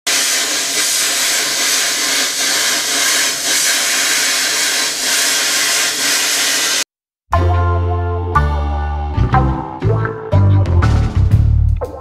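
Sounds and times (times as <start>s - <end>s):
plasma cutter hissing: 0.0s - 6.9s.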